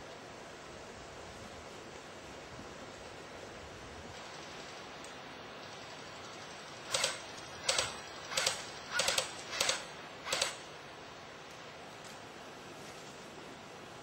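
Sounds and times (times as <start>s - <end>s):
steady outdoor hiss: 0.0s - 14.0s
airsoft gun firing bursts: 6.9s - 10.7s.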